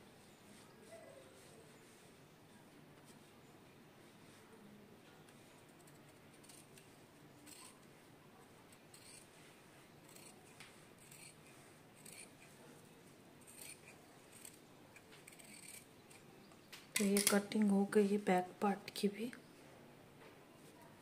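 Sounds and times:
scissors cutting fabric: 5.8s - 7.8s, 8.7s - 9.3s, 10.0s - 12.5s, 13.4s - 16.3s.

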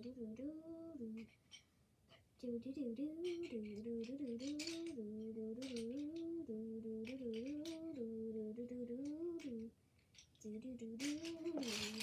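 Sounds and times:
girl humming a tune: 0.0s - 1.3s, 2.4s - 9.7s
pencils clicking and clattering: 3.2s - 8.1s, 9.0s - 12.0s.

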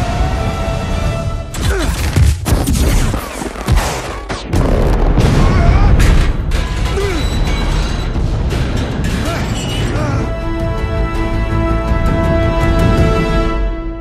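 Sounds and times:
film score music: 0.0s - 14.0s
explosions: 1.8s - 7.0s
metal crashes: 2.7s - 10.1s.

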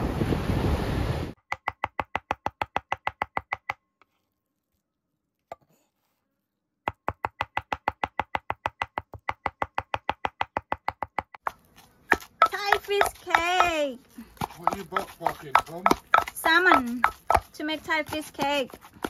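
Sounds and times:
knife chopping on cutting board: 6.9s - 13.8s, 14.4s - 19.0s.

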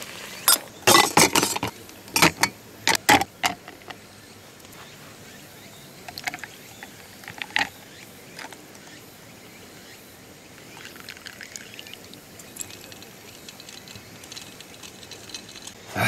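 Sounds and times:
liquid pouring over ice: 10.7s - 15.8s
ice clicking: 10.8s - 15.8s
sharp clinks: 12.4s - 15.8s.

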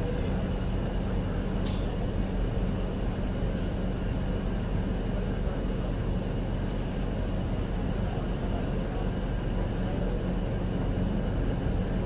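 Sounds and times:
moving train rumble: 0.0s - 12.0s
brief hiss: 1.6s - 2.0s.

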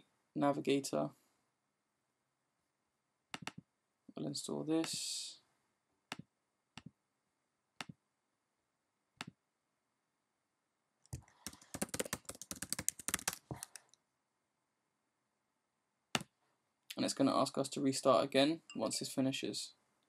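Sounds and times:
typing on computer keyboard: 11.2s - 13.9s.

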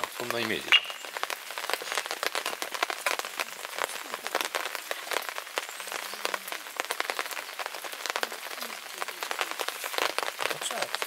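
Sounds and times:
rain falling: 0.0s - 11.0s
raindrops tapping: 0.0s - 11.0s.

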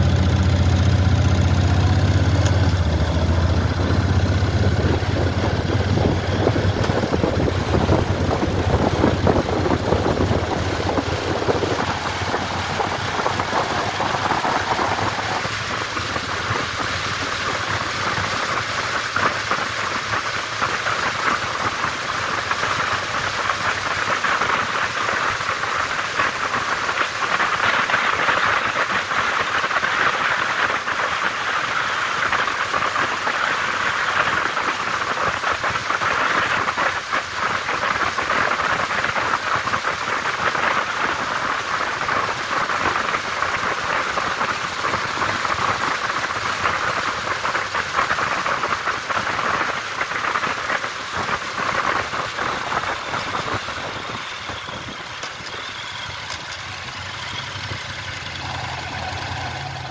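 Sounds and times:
motorcycle engine low note: 0.0s - 11.1s, 55.8s - 59.9s
wind rushing over microphone: 4.2s - 17.7s, 48.2s - 55.2s.

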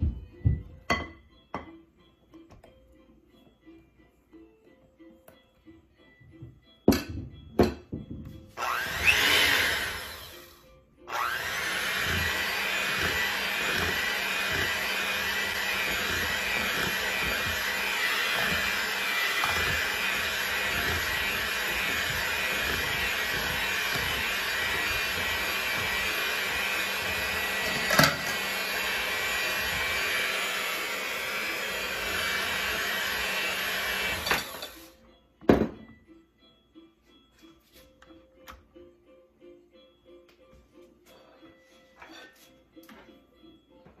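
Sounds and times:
electric hand mixer running: 8.6s - 10.5s, 11.1s - 34.8s.

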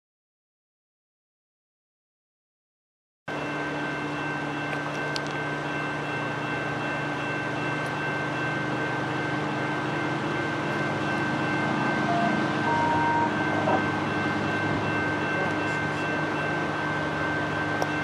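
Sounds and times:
diesel locomotive engine hum: 3.3s - 18.0s
train rumbling: 3.3s - 18.0s.

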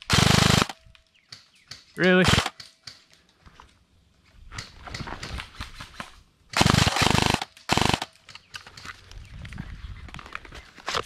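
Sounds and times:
airsoft gun firing bursts: 0.1s - 0.8s, 2.2s - 2.7s, 6.5s - 8.2s.

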